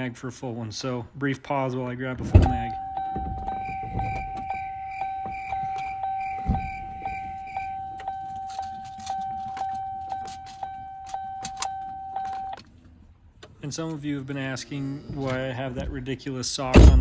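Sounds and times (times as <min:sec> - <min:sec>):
dull thump: 0:02.2 - 0:07.4, 0:16.8 - 0:17.0
truck warning chime dinging: 0:02.2 - 0:12.8.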